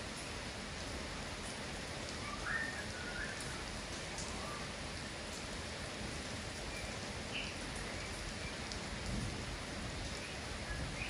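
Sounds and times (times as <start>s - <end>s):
rain hissing: 0.0s - 11.0s
faint bird chirps: 2.3s - 3.6s.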